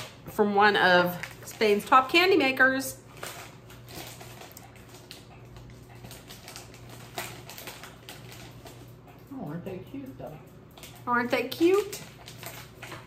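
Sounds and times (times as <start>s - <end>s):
plastic snack packet crinkling: 1.0s - 2.4s, 3.0s - 8.9s, 11.5s - 13.0s.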